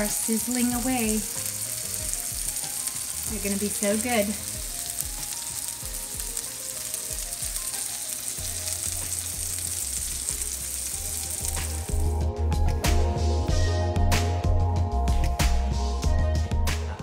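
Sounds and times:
pancakes sizzling in frying pan: 0.0 - 12.2
background music: 0.0 - 17.0.

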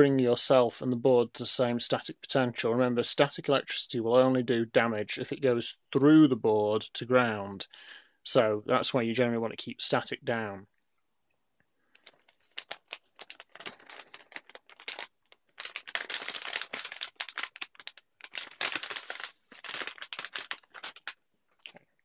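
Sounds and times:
plastic bag crinkling: 11.8 - 21.8.

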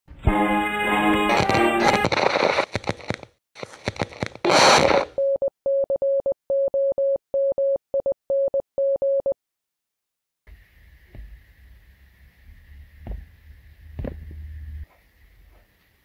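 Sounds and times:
music: 0.1 - 2.1
crackling static: 1.1 - 5.1.

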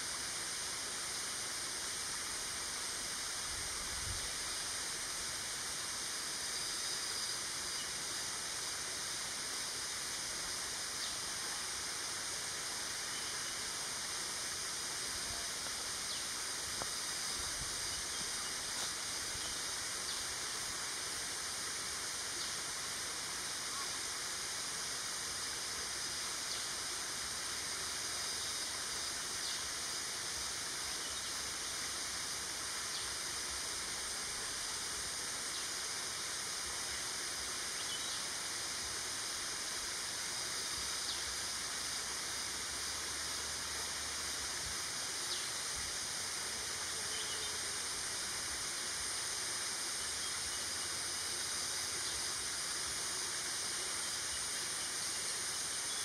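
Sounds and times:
steady high hiss: 0.0 - 56.0
faint ticks: 16.8 - 17.0.

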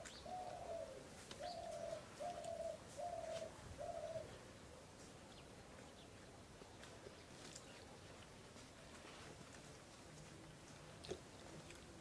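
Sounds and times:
dove cooing: 0.0 - 4.4.

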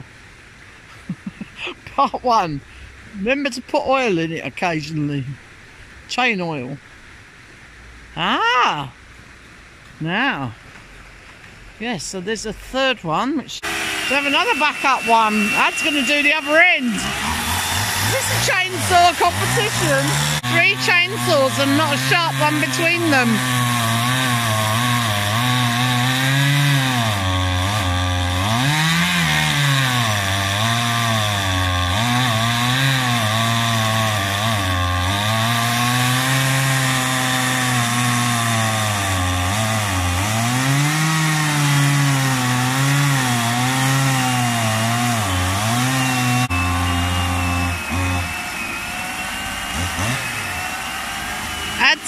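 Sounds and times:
chainsaws cutting log: 13.6 - 52.0.

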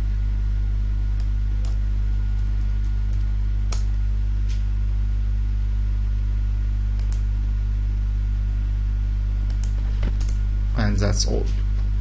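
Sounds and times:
electrical mains hum: 0.0 - 12.0
computer mouse clicks: 7.0 - 7.3, 9.5 - 10.4.

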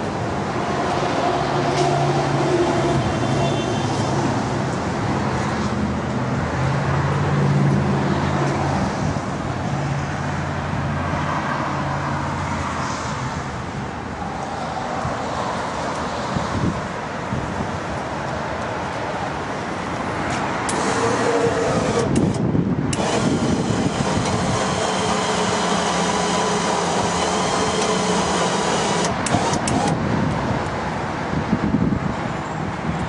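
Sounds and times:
traffic noise: 0.0 - 33.0
vehicle engine humming: 17.9 - 30.4.

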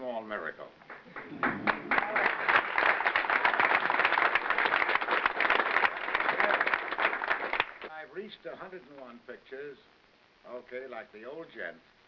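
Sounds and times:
audience applauding: 0.8 - 7.9.

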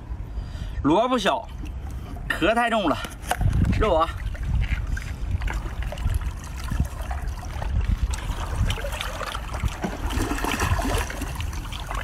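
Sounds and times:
wind rumbling on microphone: 0.0 - 12.0
sea water rushing: 4.9 - 12.0.

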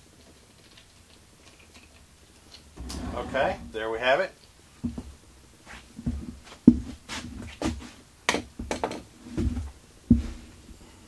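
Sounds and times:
footsteps and handling thumps: 4.8 - 10.8.

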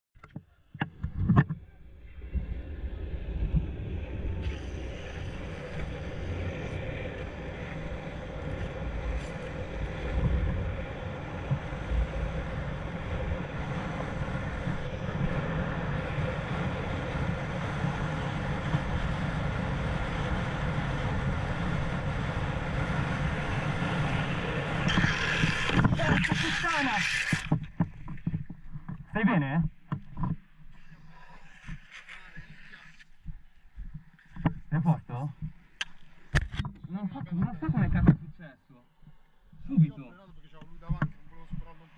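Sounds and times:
skateboard wheels rolling on asphalt: 0.8 - 36.4
wind buffeting microphone: 0.9 - 29.2.

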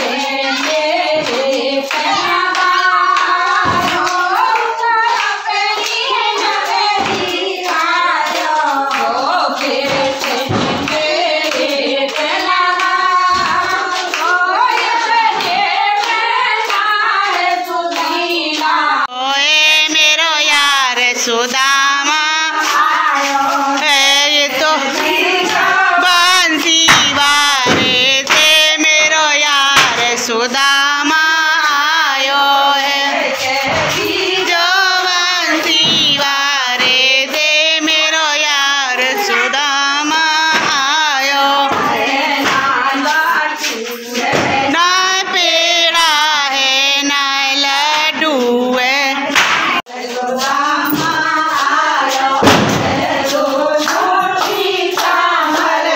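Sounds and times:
hand claps: 0.0 - 18.8, 19.4 - 55.9.

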